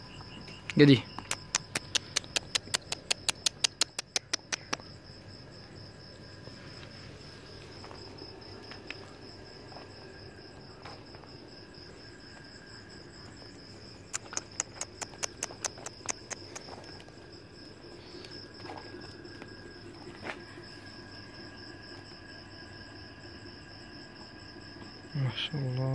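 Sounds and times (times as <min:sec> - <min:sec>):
crickets chirping: 0:00.0 - 0:25.9
sharp clicks: 0:00.7 - 0:04.9, 0:14.1 - 0:16.8.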